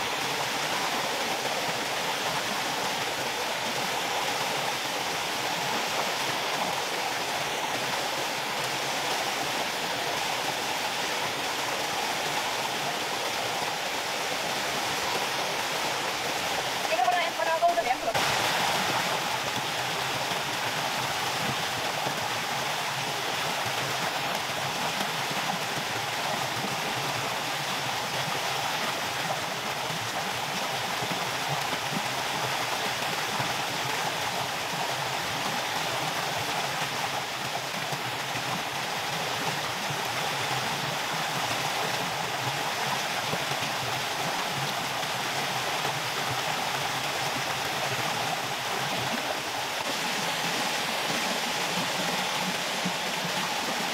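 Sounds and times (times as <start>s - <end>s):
waterfall rushing over rocks: 0.0s - 53.9s.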